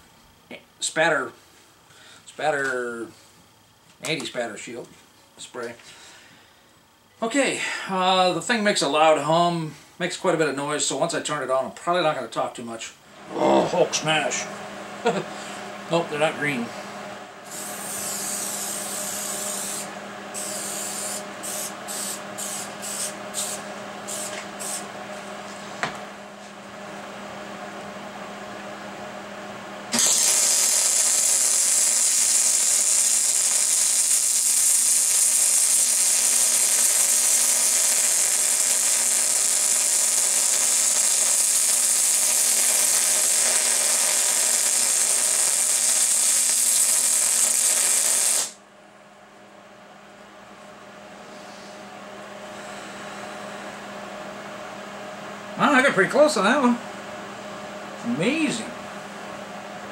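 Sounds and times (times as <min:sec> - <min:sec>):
welder humming: 0:13.1 - 0:48.6
short hissing bursts: 0:17.4 - 0:24.9, 0:30.0 - 0:48.6
welding arc crackling hiss: 0:17.4 - 0:24.9, 0:29.9 - 0:48.6.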